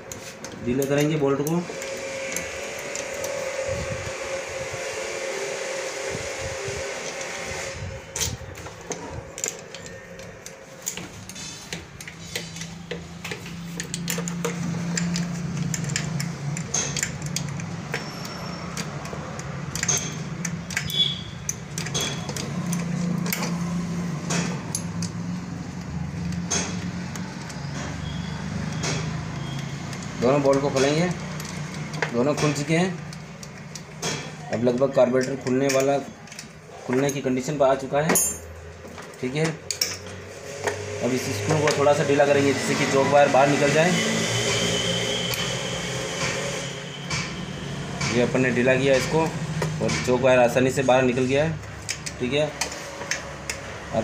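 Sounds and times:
hand tools clicking: 0.0 - 3.7, 8.1 - 37.3, 38.1 - 38.5, 51.4 - 54.0
steady whirr: 1.3 - 25.2
metal clinking: 38.1 - 38.6.

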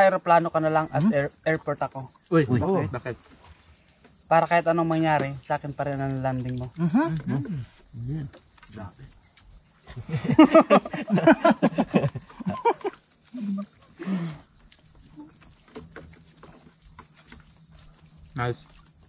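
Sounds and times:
insects chirring: 0.0 - 19.0
people laughing: 2.5 - 3.0, 9.9 - 13.6.

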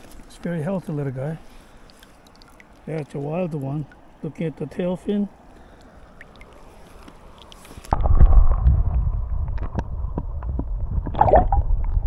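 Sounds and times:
faint riverside ambience: 0.0 - 8.1
underwater river rumble: 1.4 - 12.0
underwater clicks and knocks: 6.2 - 12.0.

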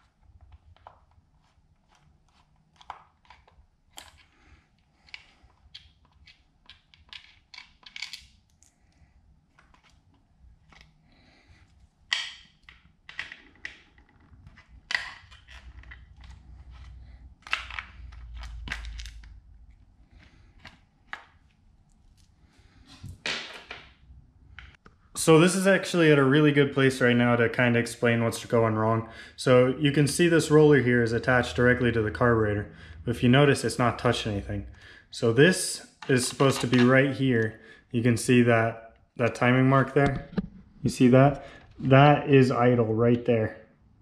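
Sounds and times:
metal parts clicking and knocking: 5.1 - 8.3.

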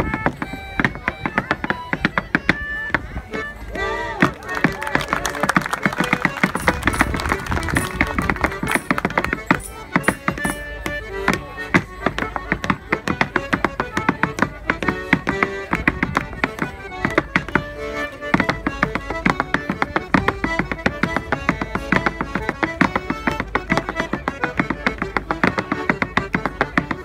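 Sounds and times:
clogs tapping on wooden stage: 5.5 - 17.6, 18.3 - 27.0
squeezebox dance tune: 6.0 - 11.1.

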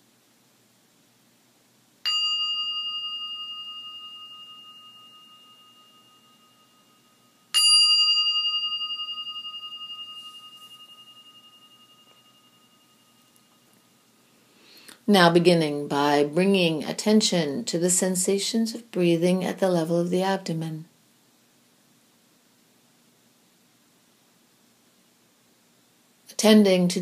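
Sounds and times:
meditation bell ringing: 2.0 - 14.3.

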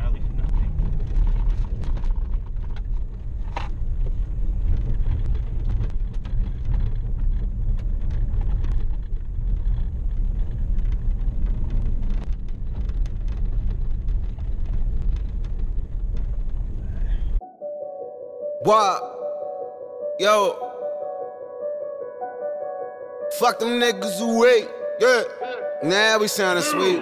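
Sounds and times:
car engine and tyres rumbling: 0.0 - 17.4.

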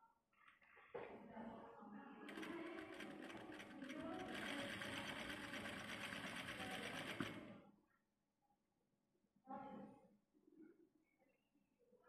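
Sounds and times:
sewing machine running: 2.3 - 7.6.

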